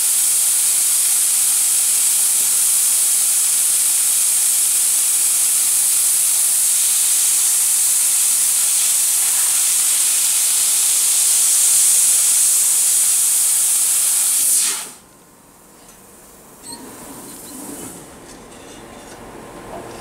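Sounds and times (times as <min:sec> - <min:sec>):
gas hissing from laser cutter nozzle: 0:00.0 - 0:15.0.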